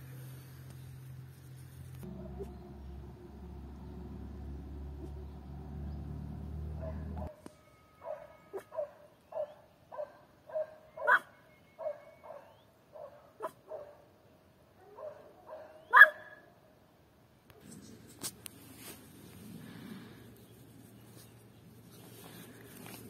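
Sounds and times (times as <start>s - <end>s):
small dog yapping: 15.9s - 16.3s.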